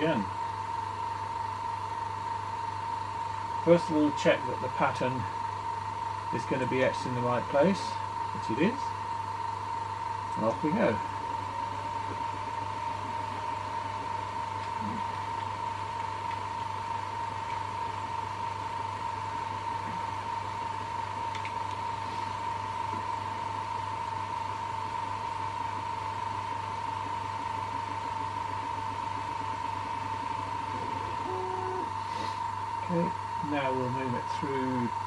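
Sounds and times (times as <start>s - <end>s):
laser engraver hum and whine: 0.0s - 35.0s.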